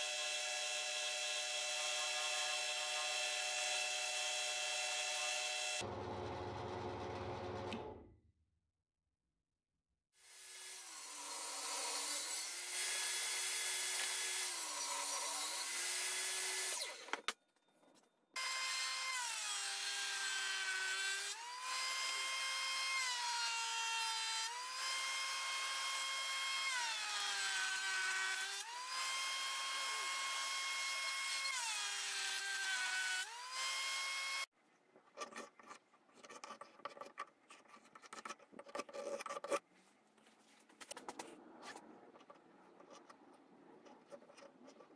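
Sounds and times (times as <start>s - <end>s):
table saw cutting a board: 0.0s - 6.1s, 10.2s - 17.2s, 18.4s - 34.5s
pencil scratching on wood: 35.2s - 39.6s.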